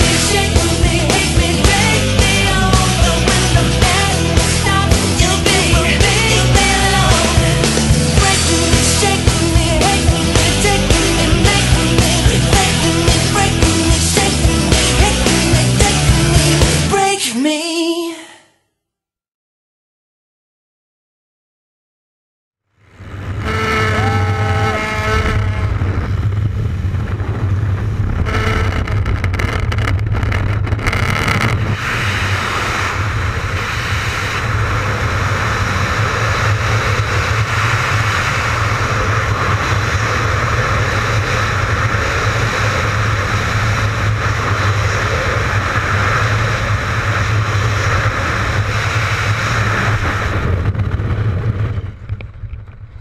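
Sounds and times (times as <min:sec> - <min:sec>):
propeller engine: 0:00.0 - 0:17.0, 0:22.8 - 0:53.0
strong wind roaring: 0:22.8 - 0:53.0.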